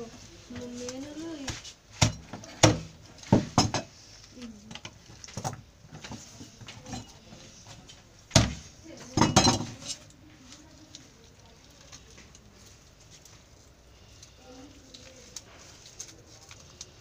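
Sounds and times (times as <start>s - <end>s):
metal tools clattering: 6.7s - 7.3s, 9.1s - 10.1s.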